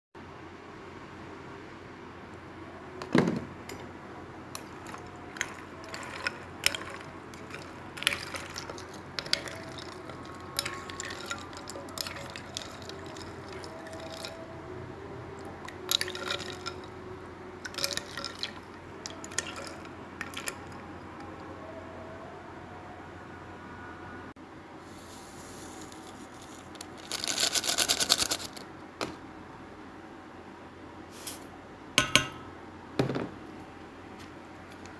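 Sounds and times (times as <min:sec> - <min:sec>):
steady background hum: 0:00.2 - 0:34.9
liquid sloshing: 0:04.5 - 0:14.4, 0:15.6 - 0:17.0, 0:17.6 - 0:20.9
spoon clinking against bowl: 0:04.6 - 0:14.4.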